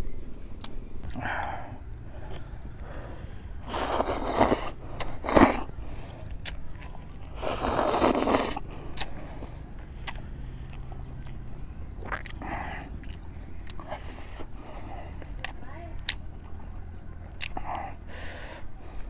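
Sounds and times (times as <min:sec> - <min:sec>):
noodles being slurped: 0:03.7 - 0:05.7, 0:07.2 - 0:09.1.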